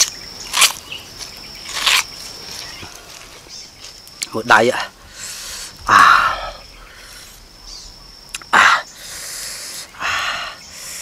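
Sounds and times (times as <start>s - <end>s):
man groaning: 5.8s - 6.6s.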